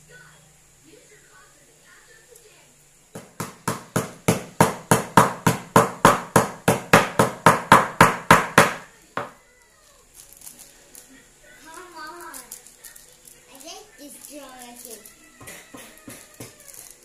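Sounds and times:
cleaver chopping on cutting board: 3.2 - 9.4.

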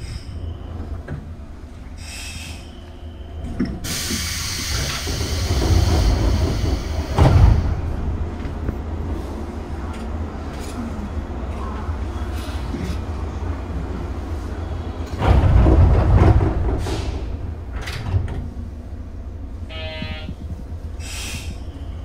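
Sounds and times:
loud air hiss: 2.0 - 2.9, 3.8 - 7.2, 21.0 - 21.7
train doors thumping shut: 3.4 - 8.9, 15.0 - 18.8.

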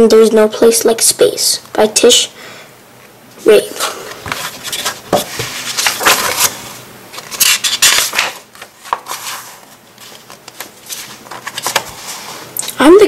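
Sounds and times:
book pages turning: 4.0 - 12.5
paper rustling and rubbing: 4.2 - 12.5.

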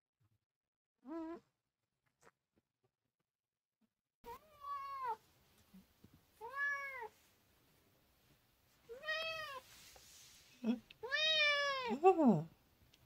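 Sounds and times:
cat meowing: 6.4 - 7.1, 8.9 - 9.6, 11.0 - 12.0.

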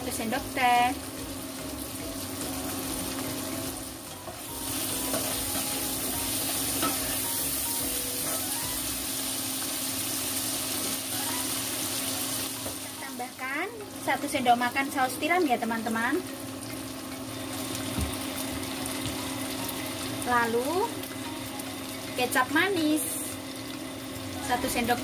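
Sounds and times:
vegetables sizzling in hot oil: 0.0 - 25.0.

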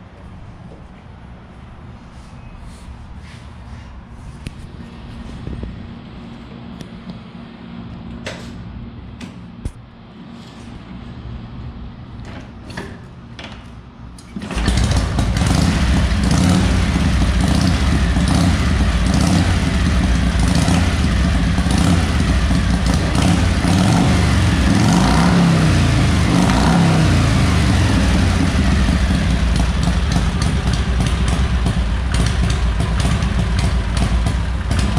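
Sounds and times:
motorcycle engine running and revving: 14.4 - 34.9.

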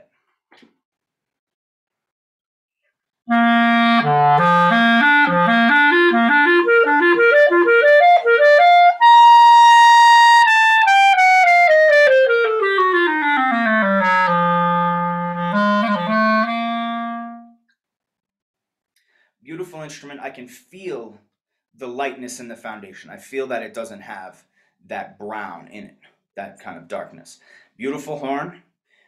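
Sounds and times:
solo clarinet: 3.3 - 17.6.

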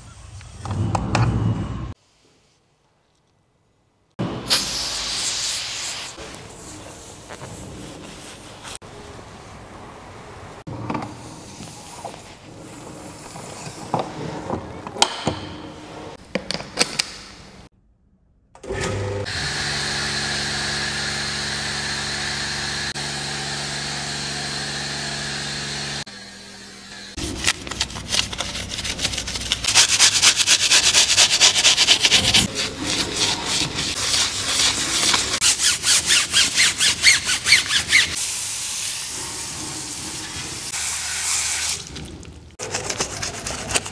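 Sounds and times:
foam cannon hissing: 4.4 - 6.3
pressure washer motor humming: 19.3 - 26.0
towel squeaking on chrome: 32.5 - 38.2.

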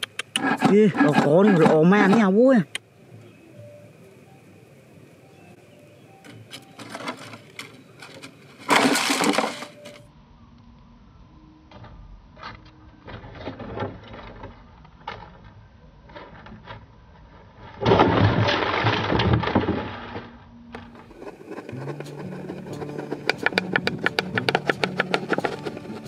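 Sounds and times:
bird scrabbling in plastic bottle: 6.5 - 10.0, 20.8 - 26.0.

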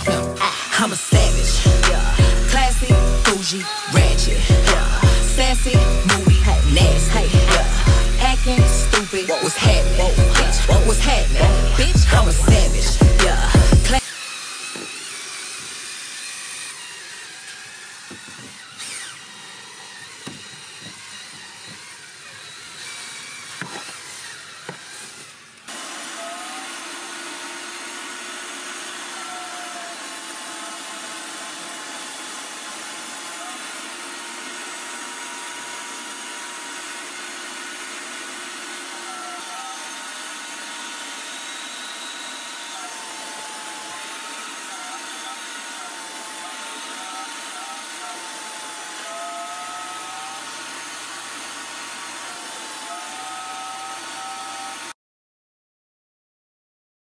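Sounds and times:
cordless drill spinning brush: 0.0 - 55.0
knocks: 18.1 - 18.6.

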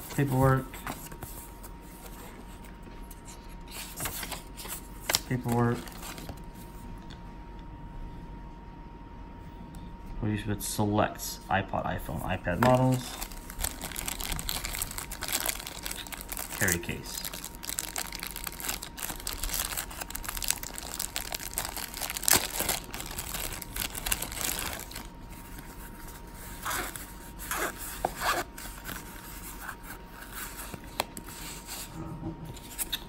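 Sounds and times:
plastic bag crinkling: 12.7 - 26.0.

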